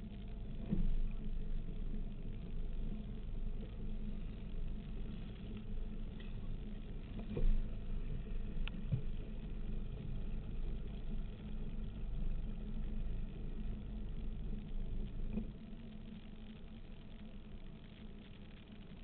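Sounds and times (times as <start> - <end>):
powerboat engine drone: 0.0 - 19.0
water and wind noise: 0.0 - 19.0.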